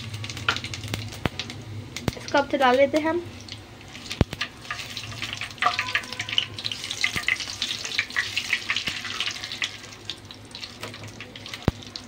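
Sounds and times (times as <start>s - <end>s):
spices sizzling in hot oil: 0.0s - 12.0s
spatula tapping pan: 5.6s - 6.4s.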